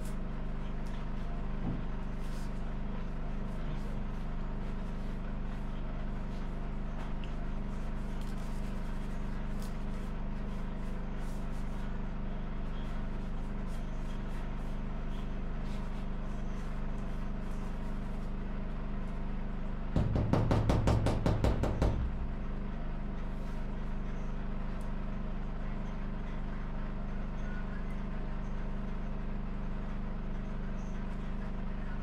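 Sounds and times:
rapid knocks: 0:20.0 - 0:22.2.

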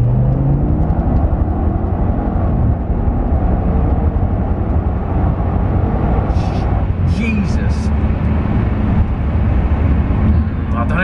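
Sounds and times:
car engine accelerating hard: 0:00.0 - 0:11.0
road noise: 0:00.0 - 0:11.0.

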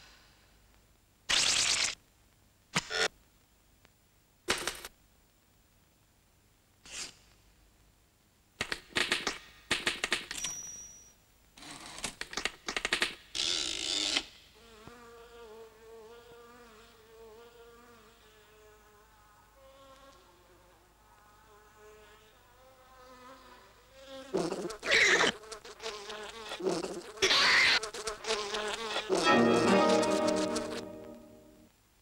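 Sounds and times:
short cartoon noises: 0:01.3 - 0:02.0, 0:26.5 - 0:28.0, 0:28.7 - 0:31.7
fly buzzing: 0:14.0 - 0:31.6.

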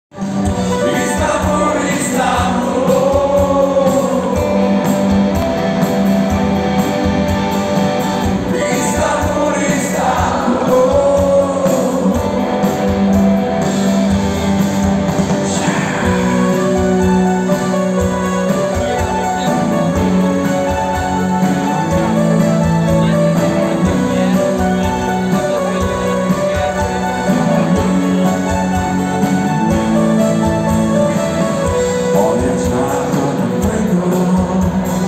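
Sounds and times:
live rock band playing: 0:00.1 - 0:35.0
person singing: 0:00.6 - 0:05.4, 0:08.4 - 0:13.0, 0:15.4 - 0:17.4, 0:29.5 - 0:35.0.

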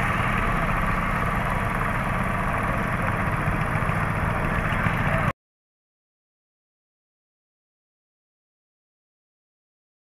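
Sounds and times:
engine running steadily: 0:00.0 - 0:05.4.

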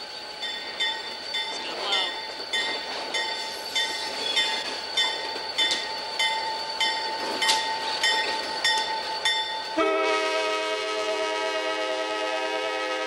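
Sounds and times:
train wheels squealing on track: 0:00.0 - 0:10.1
locomotive bell ringing: 0:00.0 - 0:11.3.

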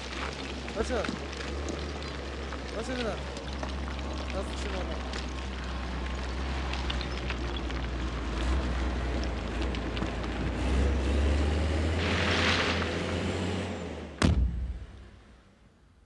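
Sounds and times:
diesel engine rumbling: 0:00.0 - 0:15.4
sharp bang: 0:14.2 - 0:15.0.

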